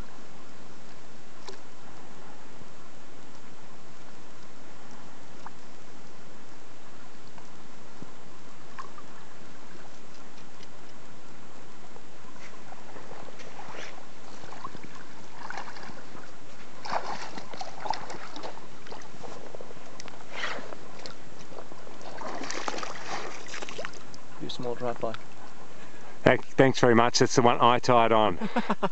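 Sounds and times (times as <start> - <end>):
fish splashing in water: 12.7 - 19.4, 20.0 - 24.2
steady hiss: 18.5 - 28.9.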